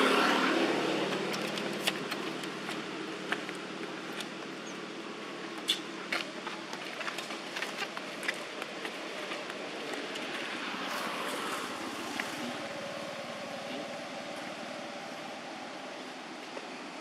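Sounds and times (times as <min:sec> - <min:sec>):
outdoor background hiss: 0:00.0 - 0:17.0.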